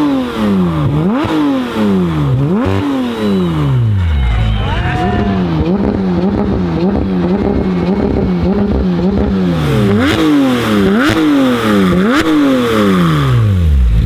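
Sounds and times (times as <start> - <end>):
sports car engine revving: 0.0 - 14.0.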